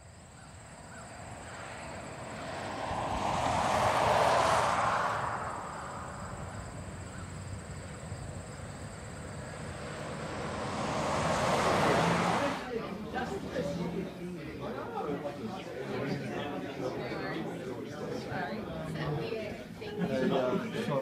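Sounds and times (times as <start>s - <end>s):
vehicle passing by: 0.4s - 13.9s.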